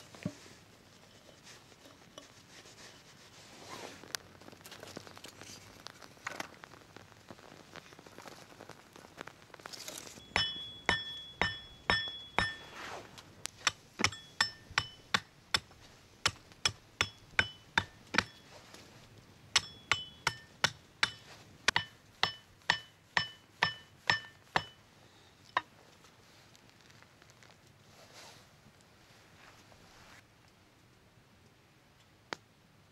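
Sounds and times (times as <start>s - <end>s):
hatchet chopping wooden stick: 13.6s - 15.7s, 16.3s - 18.4s, 19.6s - 24.8s.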